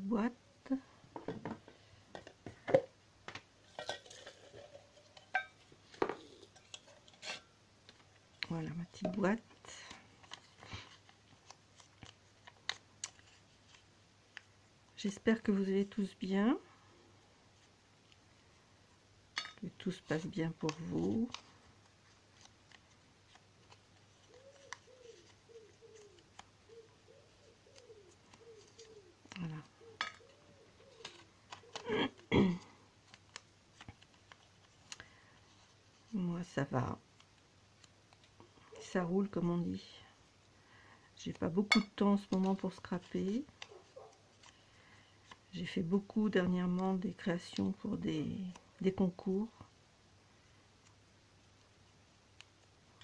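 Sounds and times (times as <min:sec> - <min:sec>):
metal tin knocks and clinks: 0:03.7 - 0:05.6
paper being folded: 0:07.9 - 0:14.5, 0:19.7 - 0:32.3, 0:33.0 - 0:39.4, 0:41.3 - 0:44.6
dove cooing: 0:24.3 - 0:32.4.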